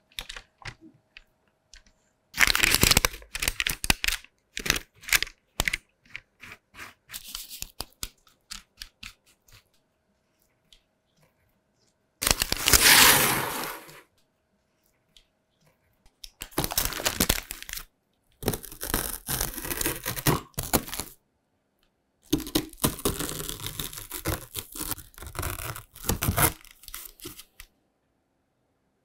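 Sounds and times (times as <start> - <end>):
baking paper crinkling: 12.2 - 14.0, 16.4 - 21.1, 22.6 - 27.6
crunching of crispy slab being cut: 12.5 - 14.0, 18.4 - 21.0.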